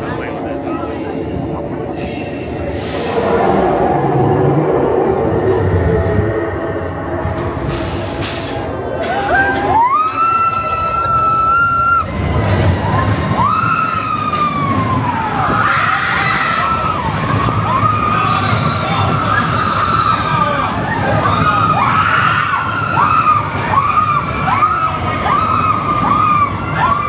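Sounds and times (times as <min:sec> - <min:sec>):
roller coaster train rumble: 0:00.0 - 0:27.0
riders screaming and whooping: 0:08.9 - 0:27.0.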